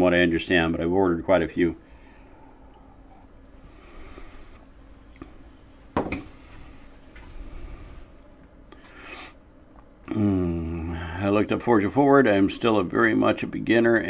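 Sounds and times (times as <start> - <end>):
mug knocking on hard surface: 6.0 - 6.2.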